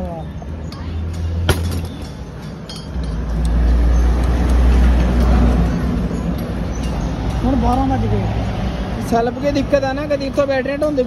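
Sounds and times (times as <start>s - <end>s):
vehicle engine rumbling: 0.8s - 8.2s.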